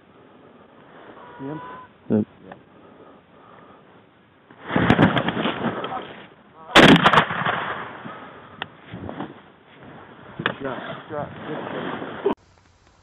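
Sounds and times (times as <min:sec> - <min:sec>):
shotgun blasts echoing: 0:06.7 - 0:08.2.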